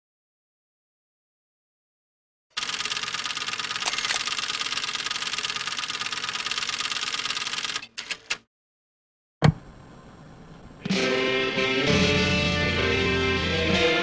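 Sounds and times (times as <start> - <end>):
fast mechanical clatter: 2.6 - 8.4
sudden thump: 9.4 - 9.6.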